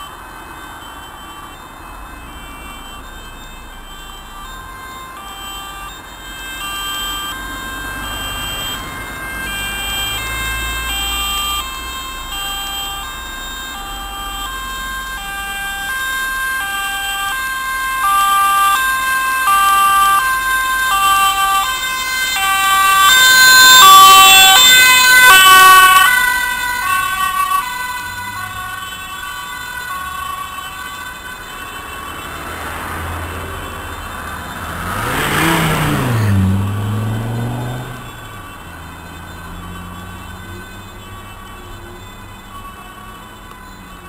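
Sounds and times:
two-tone ambulance siren: 0.0 - 44.0.

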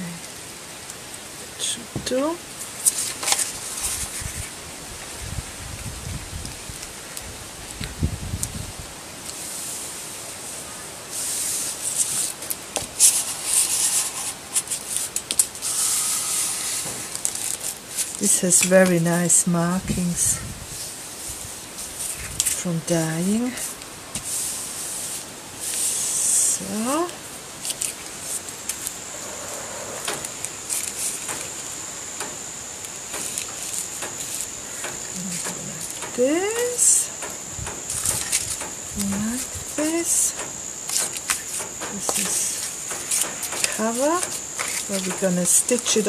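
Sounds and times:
paper rustling and rubbing: 2.6 - 5.4, 11.1 - 18.9, 20.7 - 22.6, 23.4 - 31.6, 37.9 - 40.2, 40.9 - 46.0
steady high-pitched whine: 9.4 - 46.0.

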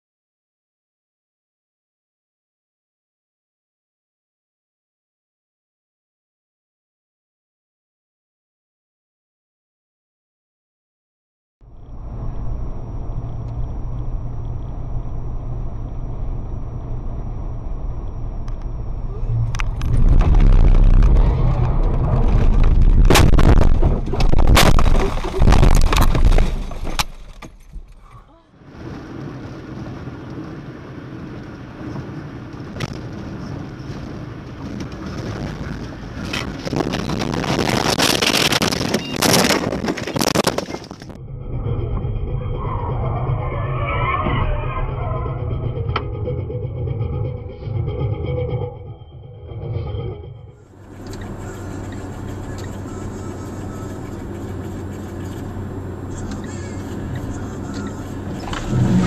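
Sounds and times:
car road and engine rumble: 11.6 - 59.0
faint high whine: 11.7 - 23.7.

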